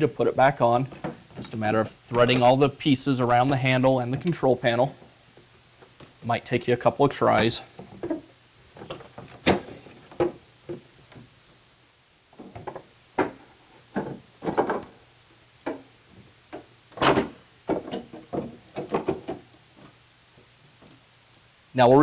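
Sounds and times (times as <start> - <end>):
plastic housing knocking and scraping: 16.5 - 19.5.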